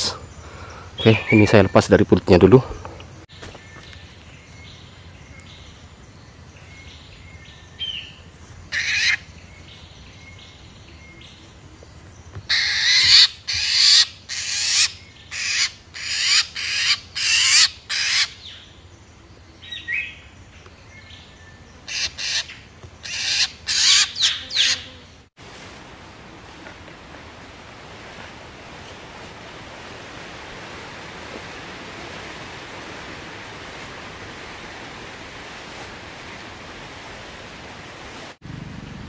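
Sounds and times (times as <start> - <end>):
bird squawking harshly: 12.5 - 18.4, 21.9 - 24.9.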